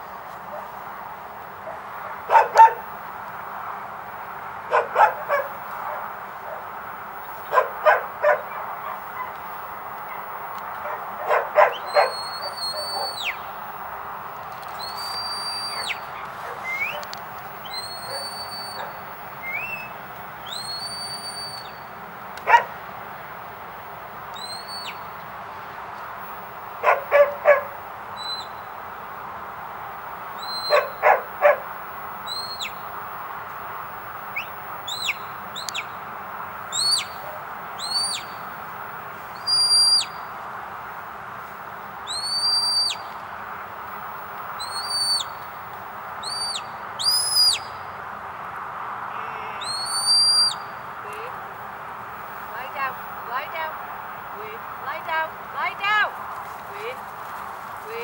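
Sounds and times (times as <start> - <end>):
dog barking: 1.6 - 2.9, 4.7 - 6.7, 7.5 - 9.4, 10.8 - 13.2, 15.7 - 17.0, 22.5 - 22.7, 26.8 - 27.8, 30.6 - 31.7.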